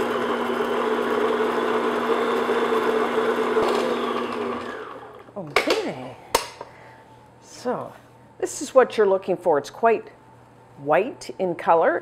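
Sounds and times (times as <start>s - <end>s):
stand mixer motor whine: 0.0s - 5.3s.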